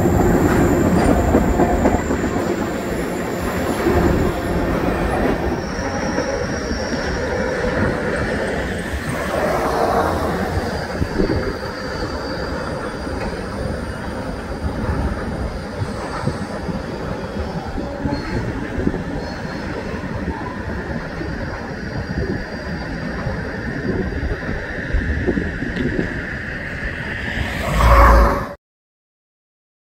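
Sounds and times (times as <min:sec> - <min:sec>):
freight cars rumbling on rails: 0:00.0 - 0:28.6
high-pitched wheel squeal: 0:26.6 - 0:28.6.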